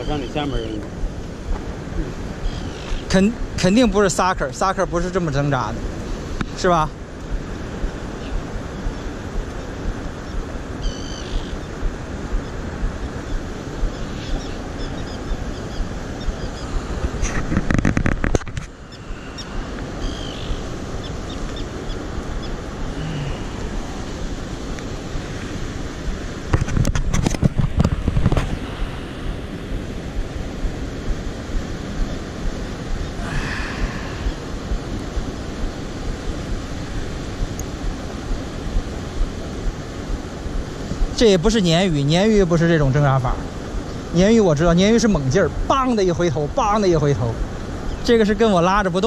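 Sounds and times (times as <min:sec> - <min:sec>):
wind on microphone: 0:00.0 - 0:49.0
fast-flowing river water: 0:28.5 - 0:48.8.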